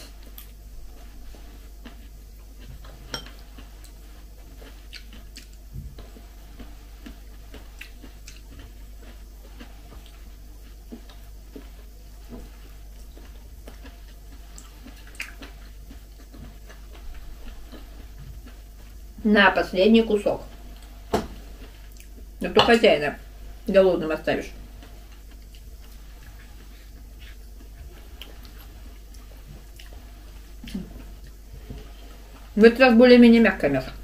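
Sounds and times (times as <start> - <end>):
chewing: 0.0 - 19.0, 20.4 - 22.3, 24.7 - 32.6
steady low hum: 0.0 - 34.0.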